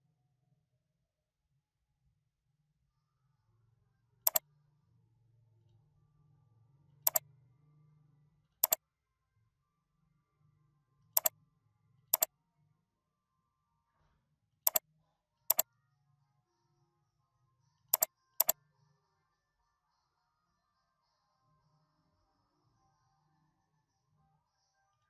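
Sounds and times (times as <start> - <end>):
computer mouse clicks: 18.0 - 18.6.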